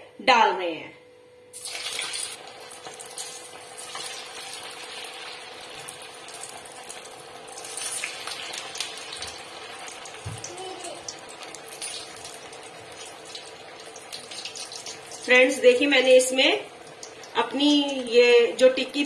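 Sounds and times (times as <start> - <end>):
oil sizzling and crackling: 1.5 - 19.0.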